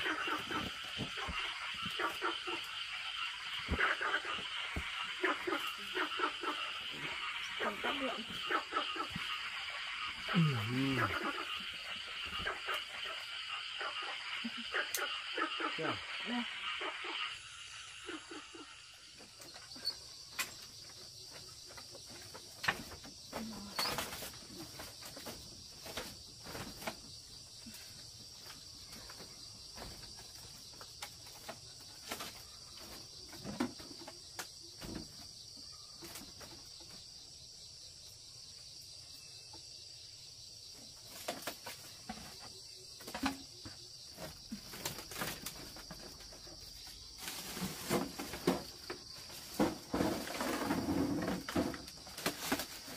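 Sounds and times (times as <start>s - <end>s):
footsteps on bamboo floor: 0.0s - 5.7s
high-pitched insect chorus: 0.0s - 52.9s
things being set down: 47.4s - 52.9s.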